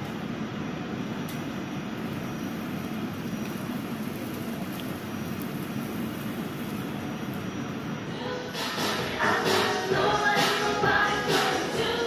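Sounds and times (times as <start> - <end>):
ventilation fans rushing: 0.0 - 12.0.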